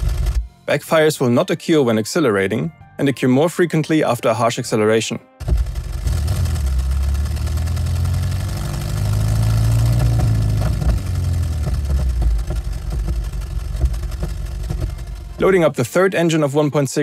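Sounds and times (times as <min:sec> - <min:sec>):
engine revving: 0:05.4 - 0:15.7.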